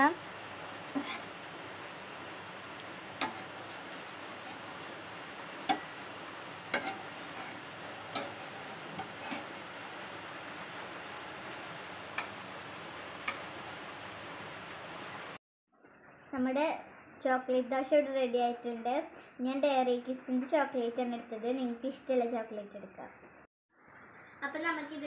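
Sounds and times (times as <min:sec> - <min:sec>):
metal spatula scraping griddle: 0:00.9 - 0:01.8, 0:03.0 - 0:15.3.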